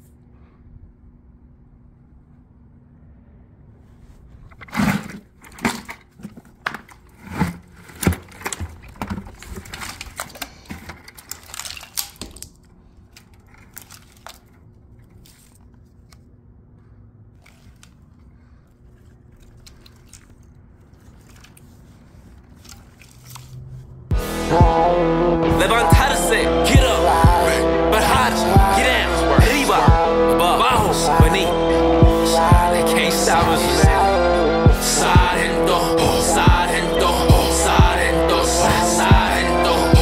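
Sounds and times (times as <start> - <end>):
cords rustling and scraping: 3.8 - 24.1.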